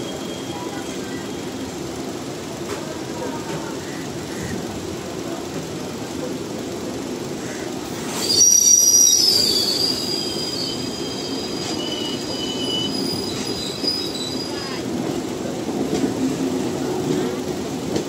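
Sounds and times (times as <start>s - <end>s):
train coaches rumbling past: 0.0s - 18.0s
wheel squeal: 8.0s - 14.8s.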